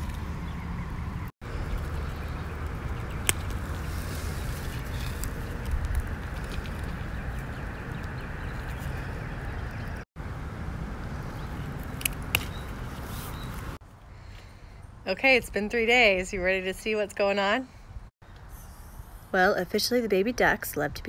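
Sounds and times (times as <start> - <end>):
outdoor background noise: 0.0 - 21.0
hands picking among leaves: 1.9 - 8.9.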